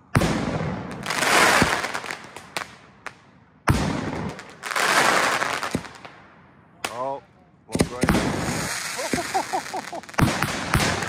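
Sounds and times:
fireworks crackling: 0.0 - 6.2, 7.8 - 11.0
firework bang: 7.8 - 11.0.

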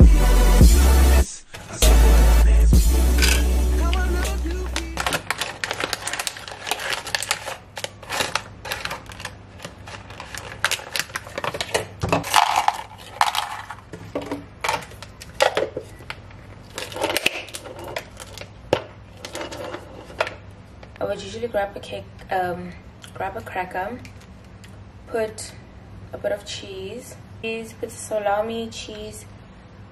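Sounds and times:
crackers clicking on a plate: 3.2 - 13.9
plastic sleeve crinkling: 3.2 - 21.0.

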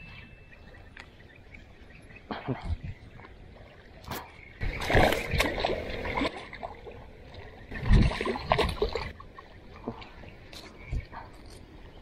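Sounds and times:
fish thrashing and splashing: 4.2 - 9.5.

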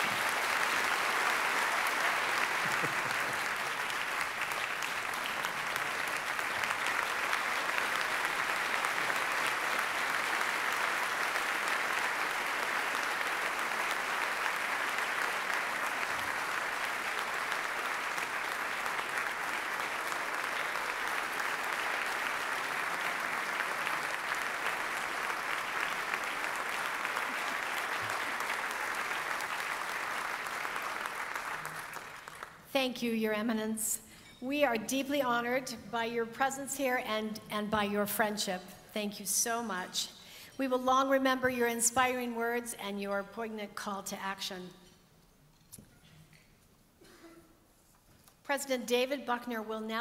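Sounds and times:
audience applauding: 0.0 - 32.6.

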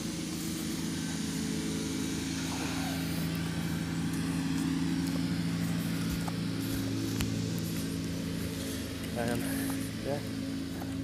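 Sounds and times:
outdoor noise: 0.0 - 11.0
steady low engine-like hum: 0.0 - 11.0.

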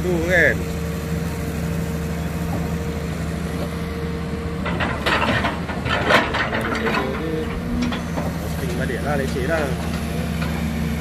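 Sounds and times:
excavator diesel engine running: 0.0 - 11.0
cracking and clattering: 4.6 - 8.3.

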